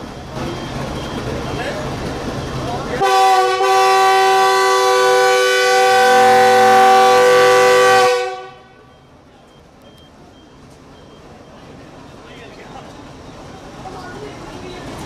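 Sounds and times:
locomotive air horn blast: 3.0s - 8.9s.

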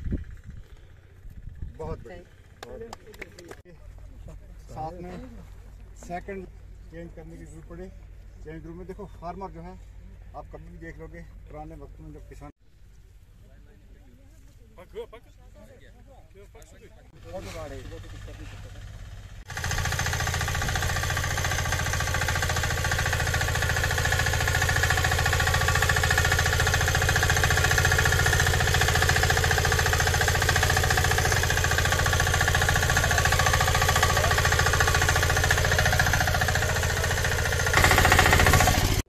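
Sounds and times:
tiller engine running: 17.2s - 39.0s
tines churning soil: 19.5s - 39.0s.

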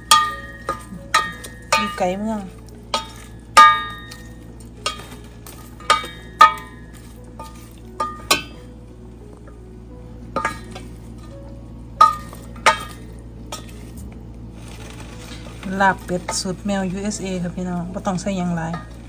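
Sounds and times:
spoon clinking on metal pot: 0.0s - 8.7s, 10.4s - 11.4s, 12.0s - 14.0s
wooden spoon stirring in a pot: 0.0s - 9.5s, 10.2s - 19.0s.

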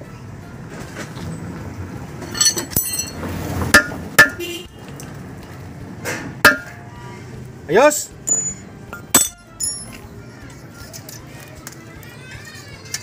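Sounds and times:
metallic clinks and taps: 8.3s - 10.0s.

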